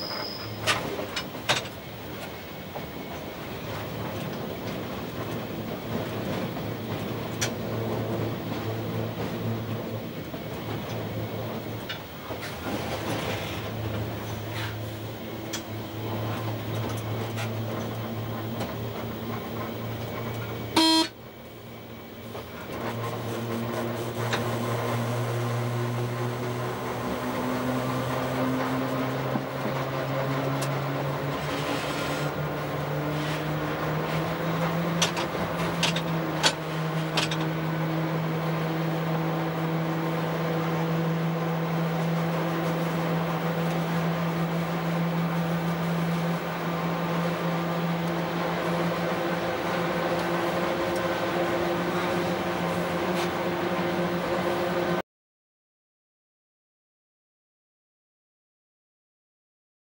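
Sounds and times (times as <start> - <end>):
wheels clicking over rail joints: 0.0 - 20.7, 28.5 - 54.4
locomotive engine drone: 0.0 - 55.0
train horn toot: 20.7 - 21.2.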